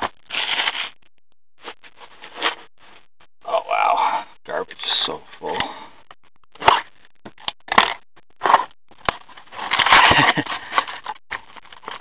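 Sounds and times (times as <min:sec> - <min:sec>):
crinkling rustle of packs: 0:00.0 - 0:01.0.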